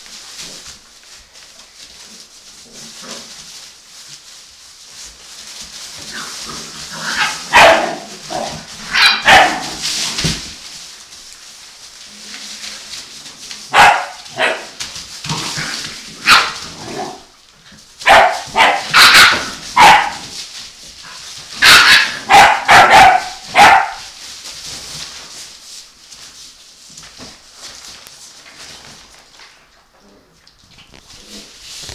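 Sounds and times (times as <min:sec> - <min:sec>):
puppies yapping and barking: 0:07.1 - 0:10.0, 0:18.0 - 0:20.4, 0:21.5 - 0:24.2.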